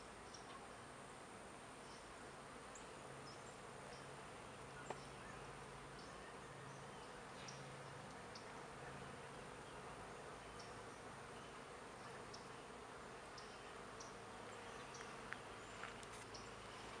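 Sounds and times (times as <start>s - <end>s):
bees buzzing: 2.1s - 17.0s.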